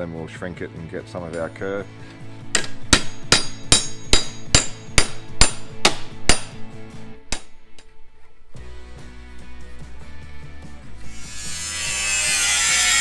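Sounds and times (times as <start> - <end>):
hammer striking sheet steel: 2.6 - 6.5.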